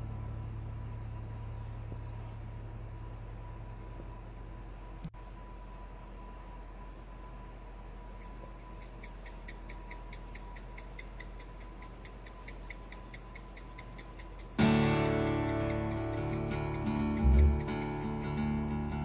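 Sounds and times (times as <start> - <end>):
steady low hiss: 0.0 - 19.0
spice shaker rattling: 8.8 - 19.0.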